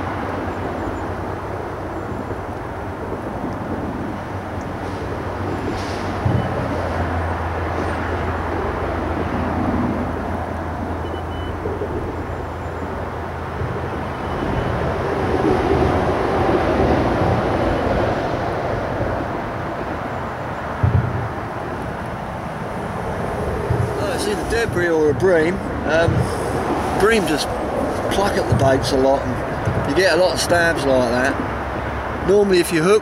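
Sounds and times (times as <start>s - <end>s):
road traffic rumble: 0.0s - 33.0s.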